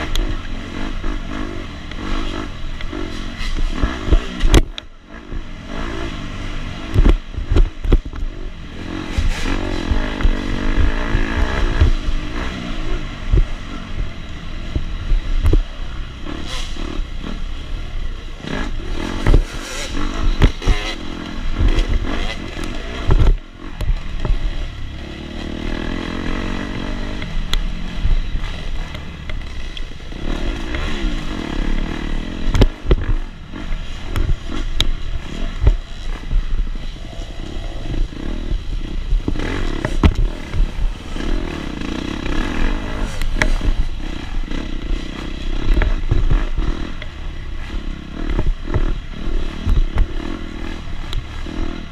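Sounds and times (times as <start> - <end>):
bike knocking and rattling: 0.0 - 51.9
dirt bike engine revving: 0.0 - 51.9.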